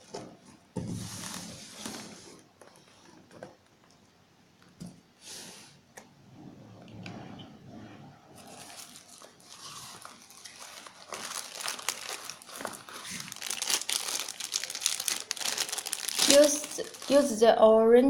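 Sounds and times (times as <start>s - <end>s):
plastic bag crinkling: 8.4s - 17.6s.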